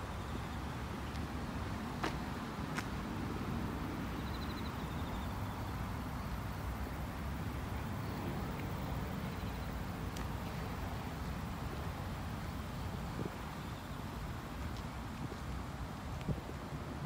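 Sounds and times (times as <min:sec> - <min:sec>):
wind buffeting microphone: 0:15.1 - 0:17.0.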